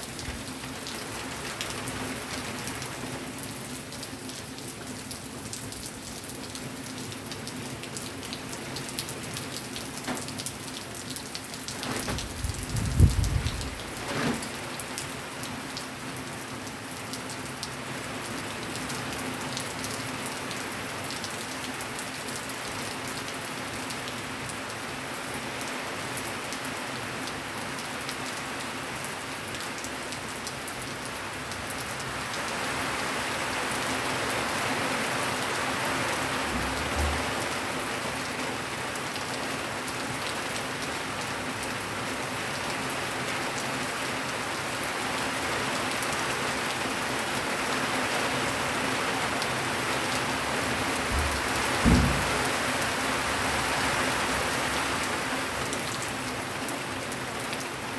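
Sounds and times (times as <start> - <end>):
rain pattering: 0.0 - 57.9
loud low thump: 51.1 - 52.6.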